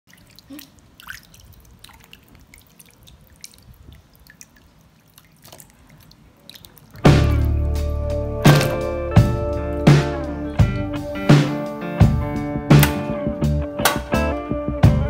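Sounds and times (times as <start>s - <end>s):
small splashes in bowl of water: 0.1s - 9.0s.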